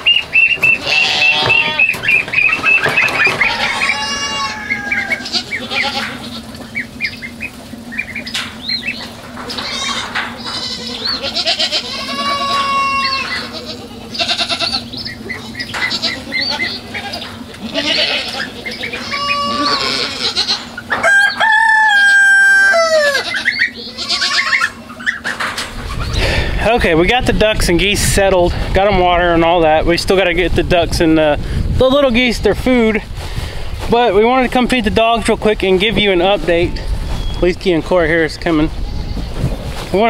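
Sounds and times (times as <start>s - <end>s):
chickens clucking: 0.0s - 28.1s, 31.0s - 40.0s
low steady hum: 0.0s - 40.0s
goats bleating: 0.6s - 7.0s, 9.0s - 20.9s, 22.0s - 25.2s.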